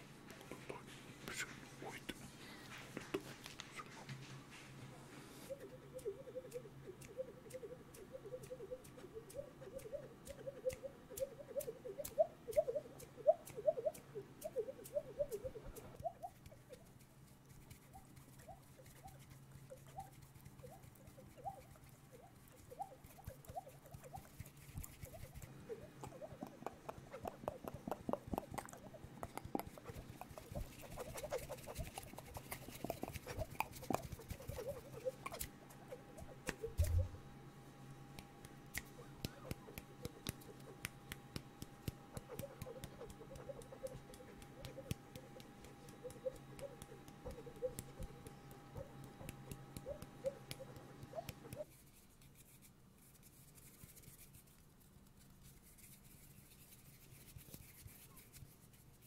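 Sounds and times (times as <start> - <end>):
mouth clicks: 5.5 - 16.8, 25.0 - 37.1, 38.1 - 51.7
hand sounds into microphone: 25.3 - 37.2.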